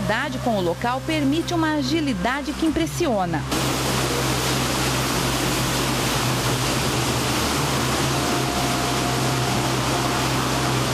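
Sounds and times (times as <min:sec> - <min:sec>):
low steady hum: 0:00.0 - 0:10.9
waterfall rushing: 0:03.5 - 0:10.9.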